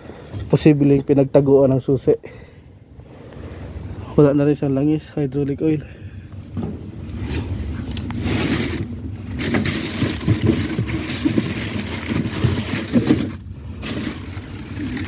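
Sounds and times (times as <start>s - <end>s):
handling crackles and knocks: 5.6s - 15.0s.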